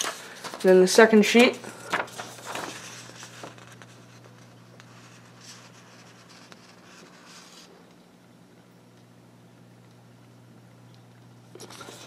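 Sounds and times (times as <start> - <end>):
paper sheets rustling: 0.0 - 7.7
low steady hum: 0.0 - 12.0.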